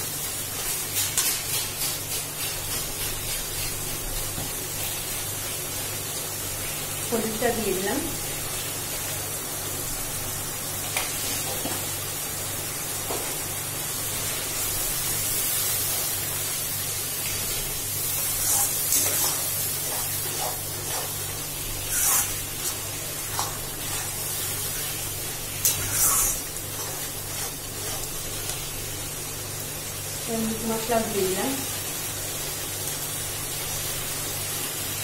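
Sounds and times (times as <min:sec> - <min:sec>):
masala sizzling in pan: 0:00.0 - 0:35.0
spatula scraping pan: 0:18.1 - 0:24.3, 0:25.6 - 0:28.2.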